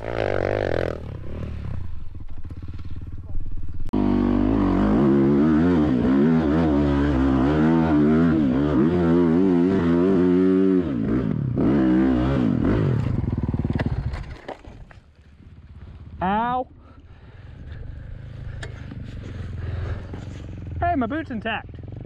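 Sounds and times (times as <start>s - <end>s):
dirt bike engine revving: 0.0s - 3.2s, 3.9s - 14.3s.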